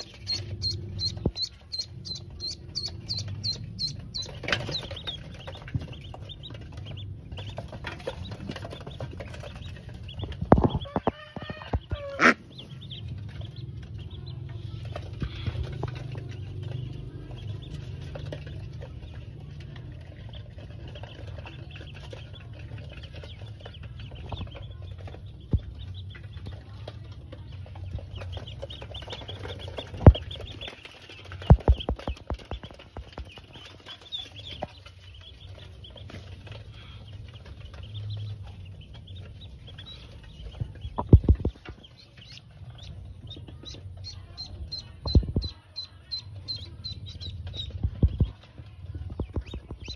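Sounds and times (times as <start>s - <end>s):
low rumble: 0.0s - 11.0s, 11.7s - 49.9s
ducklings peeping: 0.0s - 49.9s.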